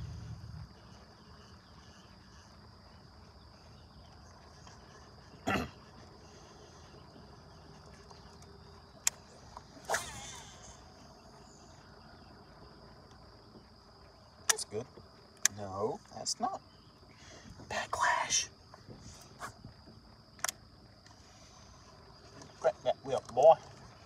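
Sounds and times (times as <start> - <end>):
low rumble: 0.0 - 0.9
high-pitched insect chorus: 0.0 - 24.0
sharp click: 20.4 - 20.6.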